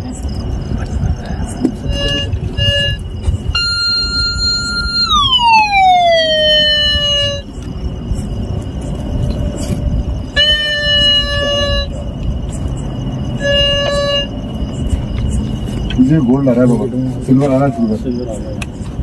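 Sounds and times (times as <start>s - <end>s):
metal detector beeps: 1.8s - 7.5s, 10.3s - 16.6s
metal detector gliding tone: 1.8s - 16.8s.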